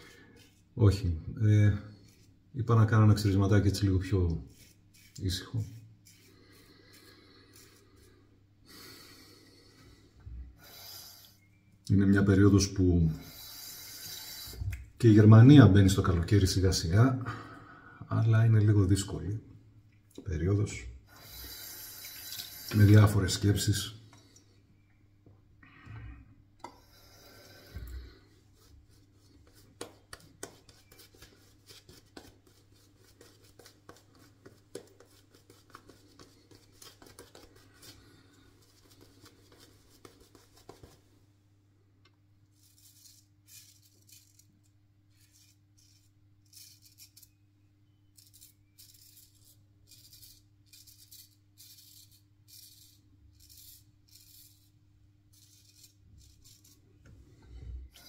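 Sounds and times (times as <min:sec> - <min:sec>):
shaving brush lathering: 0:00.4 - 0:00.7, 0:03.2 - 0:08.1, 0:21.1 - 0:23.7, 0:26.8 - 0:41.1, 0:48.2 - 0:56.8
razor scraping stubble: 0:48.1 - 0:56.8.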